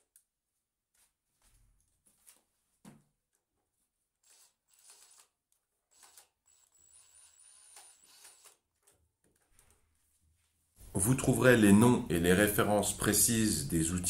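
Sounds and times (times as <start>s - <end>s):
screwdriver clicking and scraping: 4.2s - 6.3s, 7.0s - 9.0s.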